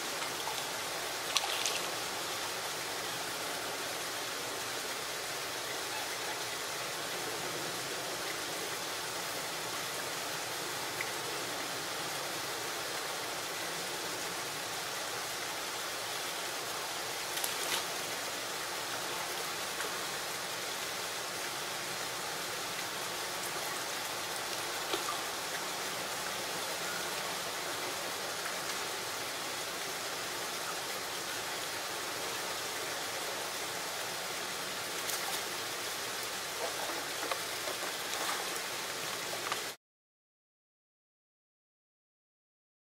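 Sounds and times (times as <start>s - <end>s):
running water hissing: 0.0s - 39.8s.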